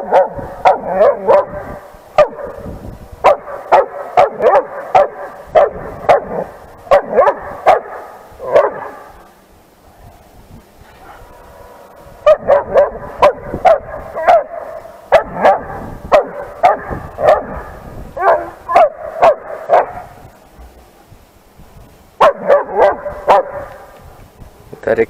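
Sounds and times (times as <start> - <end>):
dog barking sharply: 2.2 - 2.6, 3.2 - 9.0, 12.3 - 20.0, 22.2 - 23.8.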